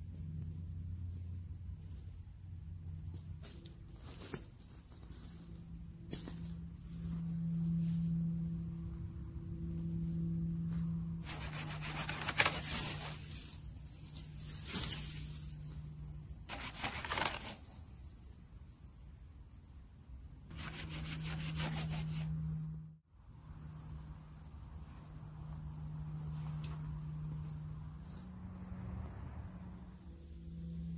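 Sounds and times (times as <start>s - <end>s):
low hum: 0.0s - 16.5s, 20.2s - 30.9s
dry branches crackling: 10.7s - 17.8s.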